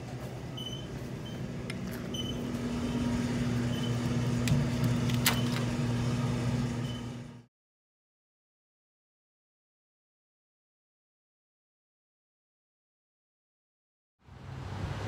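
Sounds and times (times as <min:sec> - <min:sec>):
drink cooler electrical hum: 0:00.0 - 0:07.5.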